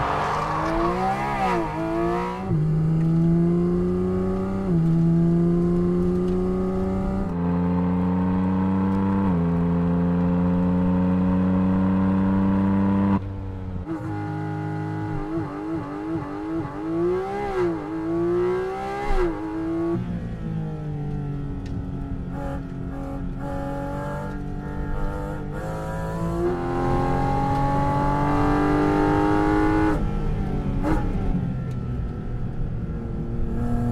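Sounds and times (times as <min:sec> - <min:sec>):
sports car engine revving: 0:00.0 - 0:13.2, 0:22.3 - 0:31.3.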